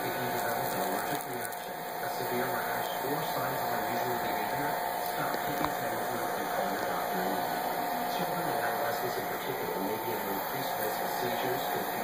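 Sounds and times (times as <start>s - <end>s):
background hum and hiss: 0.0s - 12.0s.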